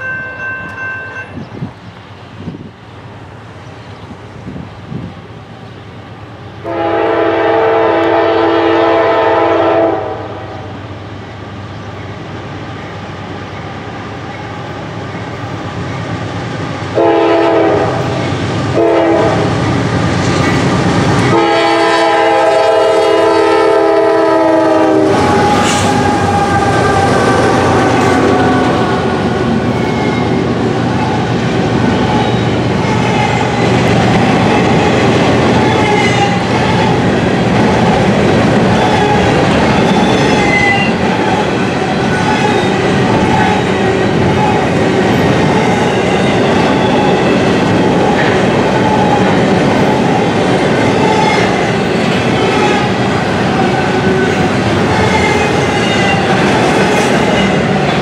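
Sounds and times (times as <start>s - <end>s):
train rumble and wheels rattling: 0.0s - 58.0s
locomotive air horn blasts: 6.6s - 10.7s, 17.0s - 19.5s, 21.3s - 29.1s.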